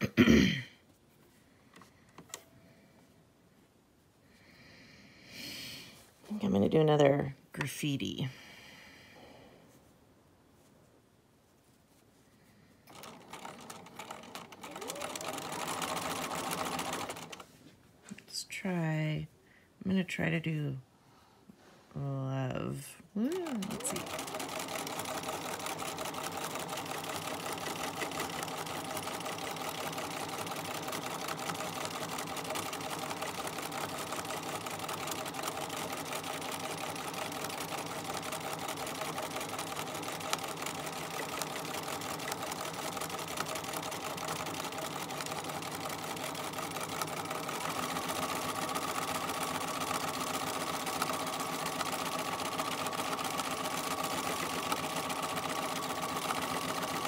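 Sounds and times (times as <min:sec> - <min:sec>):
sewing machine running: 0:12.8 - 0:17.6, 0:23.2 - 0:57.0.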